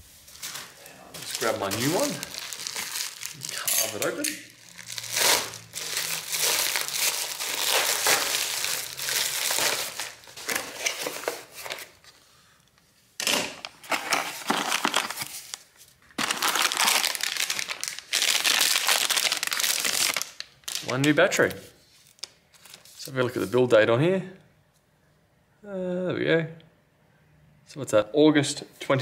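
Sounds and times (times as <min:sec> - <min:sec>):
cardboard packaging rustling: 0:00.0 - 0:12.2, 0:13.5 - 0:23.6.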